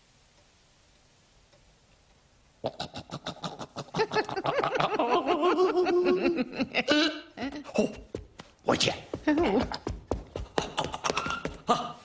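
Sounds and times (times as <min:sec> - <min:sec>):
man and woman giggling: 0:02.9 - 0:08.0, 0:10.3 - 0:12.0.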